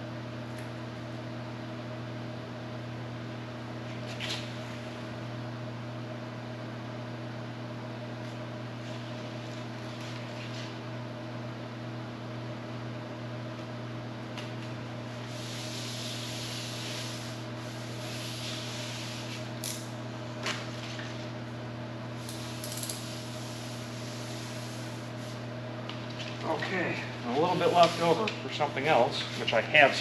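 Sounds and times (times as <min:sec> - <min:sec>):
steady machine hum: 0:00.0 - 0:30.0
rubbing hiss: 0:15.3 - 0:19.4.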